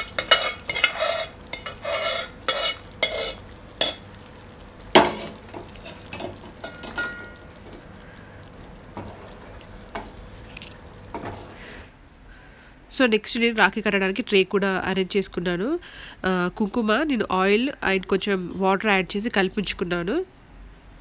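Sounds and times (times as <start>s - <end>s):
spoon clinking against steel pot: 0.0s - 4.0s, 6.2s - 7.4s
steel spoon scraping pan: 0.0s - 4.1s, 5.0s - 7.8s, 9.0s - 10.5s, 11.1s - 11.8s.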